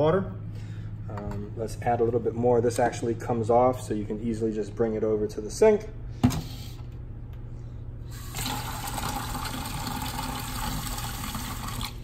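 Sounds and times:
tap water filling reservoir: 0:08.1 - 0:12.0.

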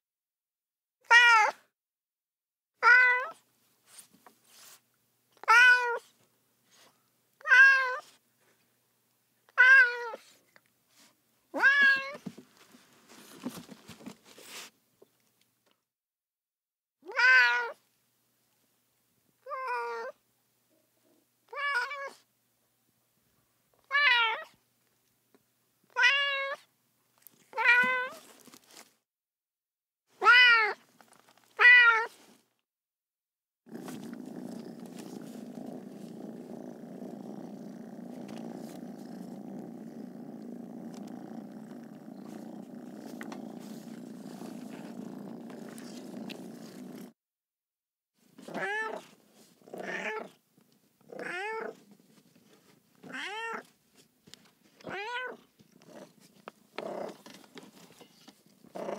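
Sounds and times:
cat meowing: 0:01.0 - 0:01.6, 0:02.8 - 0:03.4, 0:05.4 - 0:06.1, 0:07.4 - 0:08.1, 0:09.6 - 0:10.3, 0:11.6 - 0:12.2, 0:17.0 - 0:17.8, 0:21.5 - 0:22.2, 0:25.9 - 0:26.6, 0:27.6 - 0:28.2, 0:30.2 - 0:30.8, 0:31.6 - 0:32.2, 0:48.5 - 0:49.0, 0:51.2 - 0:51.8, 0:53.1 - 0:53.7, 0:54.8 - 0:55.4
cat purring: 0:33.7 - 0:47.2, 0:55.6 - 0:58.9.

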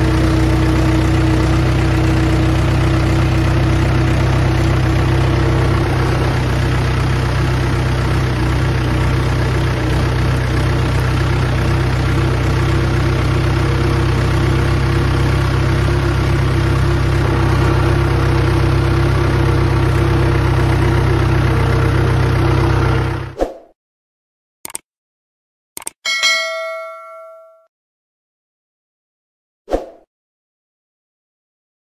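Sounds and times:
tractor diesel engine droning: 0:00.0 - 0:23.4.

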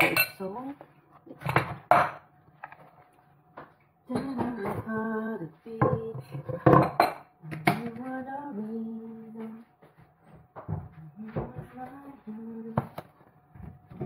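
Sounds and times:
woman humming: 0:07.4 - 0:09.6, 0:11.0 - 0:12.9.

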